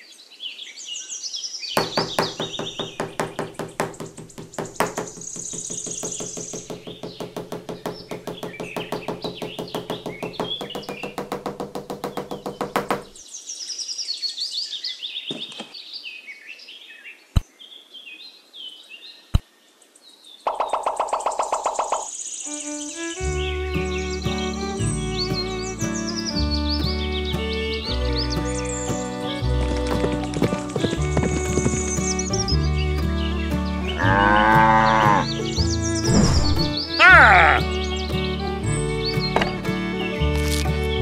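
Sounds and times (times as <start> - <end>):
birds chirping: 0.0 - 41.0
rapid knocking: 1.8 - 13.2, 29.7 - 32.5
single sharp knocks: 1.8 - 13.2.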